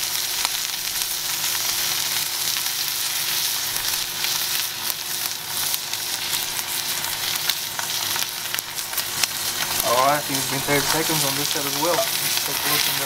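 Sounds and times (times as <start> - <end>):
steak sizzling in a skillet: 0.0 - 13.0.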